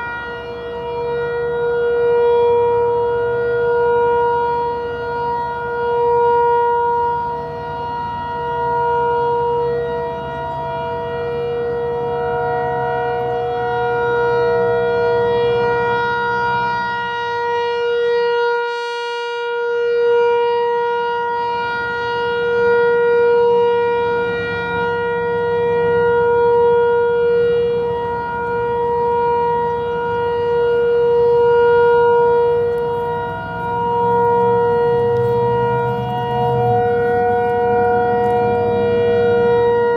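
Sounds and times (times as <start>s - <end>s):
rotating warning siren: 0.0s - 39.9s.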